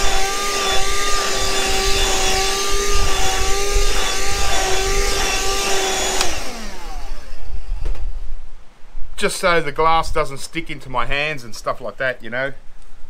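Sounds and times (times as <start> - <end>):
small electric motor running: 0.0 - 7.8.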